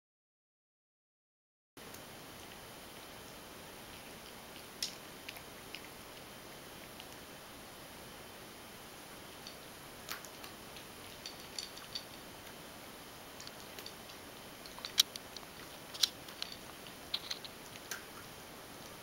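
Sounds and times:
cat eating from metal bowl: 1.9s - 7.4s, 9.3s - 12.6s, 13.3s - 18.3s.

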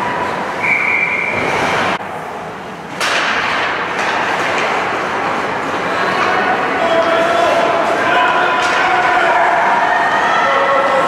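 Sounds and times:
arena crowd: 3.8s - 11.0s.

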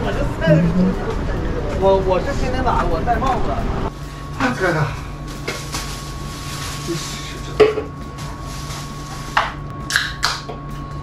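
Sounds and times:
faint hum: 0.0s - 11.0s
plastic bag rustling: 4.0s - 9.6s.

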